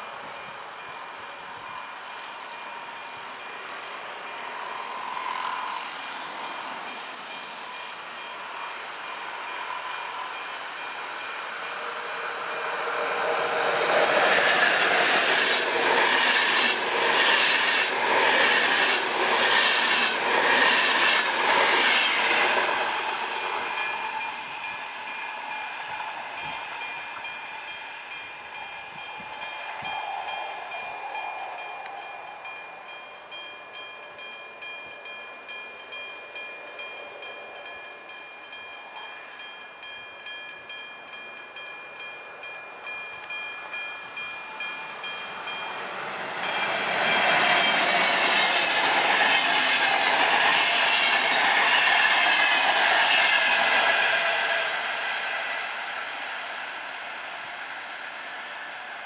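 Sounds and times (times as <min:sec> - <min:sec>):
train wheels clattering: 0:42.5 - 0:54.6.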